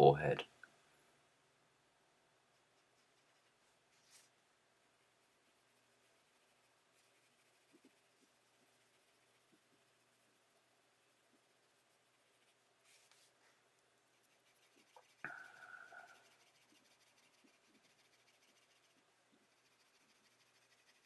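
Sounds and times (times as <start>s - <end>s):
pencil shading on paper: 2.5s - 4.2s, 5.0s - 13.2s, 14.1s - 21.0s.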